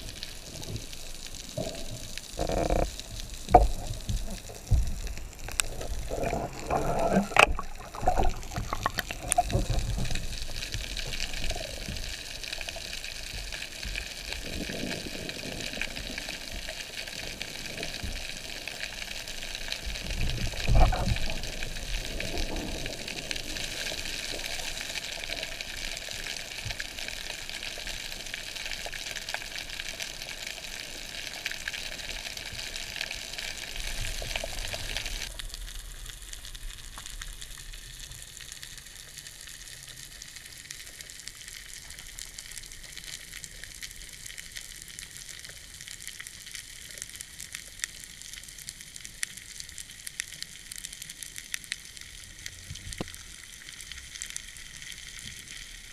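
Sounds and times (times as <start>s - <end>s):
snapping shrimp crackling underwater: 0.0s - 55.9s.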